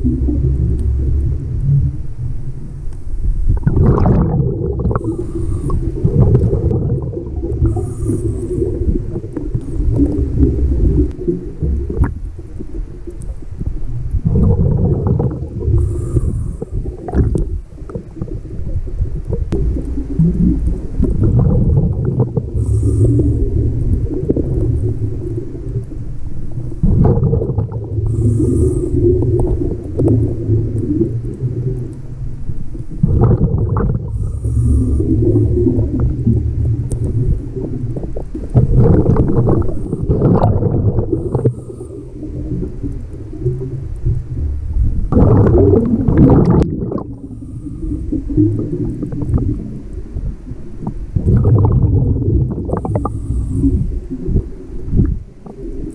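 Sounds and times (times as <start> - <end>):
exhaled bubbles: 0.0 - 55.9
regulator inhale hiss: 5.0 - 6.0, 7.6 - 10.2, 15.7 - 17.1, 22.5 - 24.2, 28.0 - 29.7, 34.1 - 36.3, 41.2 - 42.6, 47.2 - 48.4, 52.8 - 54.9.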